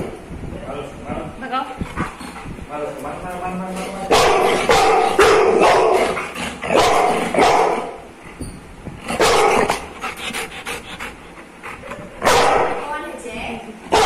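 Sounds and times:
dog barking loudly: 4.1 - 8.1, 9.1 - 9.9, 12.2 - 12.8.

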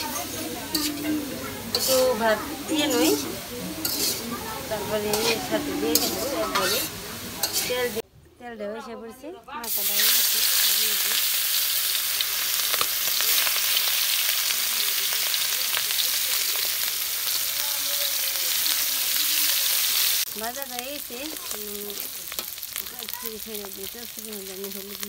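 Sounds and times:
food sizzling in hot oil: 0.0 - 8.0, 9.6 - 25.0
spatula stirring: 1.7 - 4.3.

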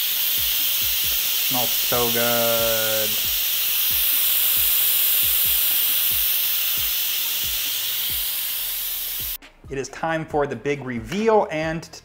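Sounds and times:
pressure cooker steam hissing: 0.0 - 9.4.

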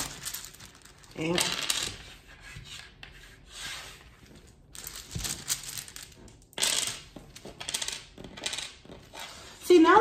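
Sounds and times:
wooden tiles clicking: 4.8 - 9.3.

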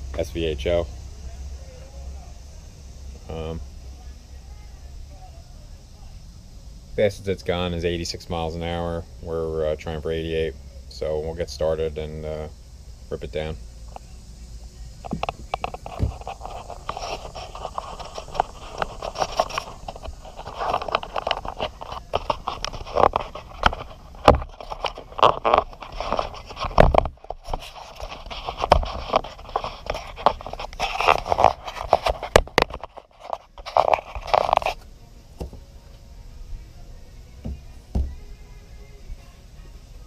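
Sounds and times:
scraping and rubbing: 15.0 - 35.7.

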